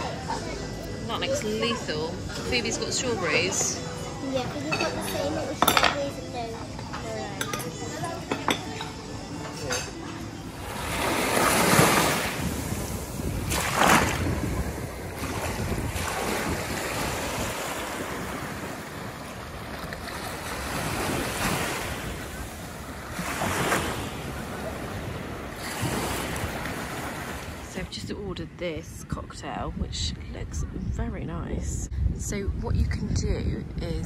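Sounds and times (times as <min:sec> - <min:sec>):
wind rumble on microphone: 0:10.9 - 0:34.0.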